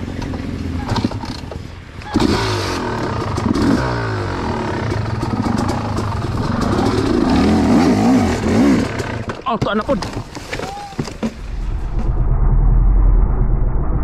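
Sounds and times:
dirt bike engine revving: 2.0 - 9.4.

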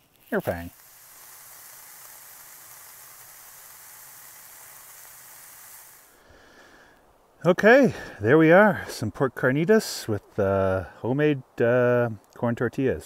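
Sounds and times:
meat sizzling in a frying pan: 0.0 - 6.2.

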